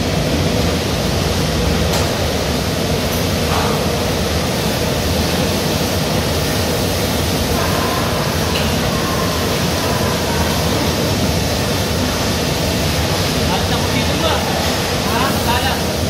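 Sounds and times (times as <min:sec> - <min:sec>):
industrial processing noise: 0:00.0 - 0:16.0.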